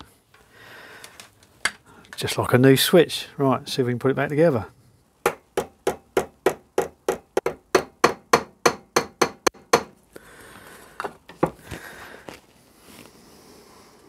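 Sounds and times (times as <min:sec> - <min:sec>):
small hammer tapping metal: 0:05.2 - 0:10.0.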